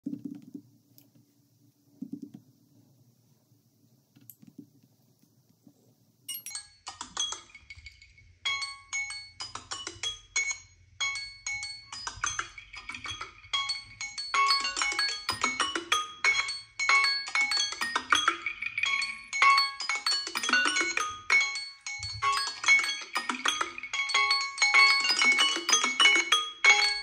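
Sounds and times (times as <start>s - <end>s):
phone timer chime melody: 6.3s - 7.4s, 8.4s - 27.0s.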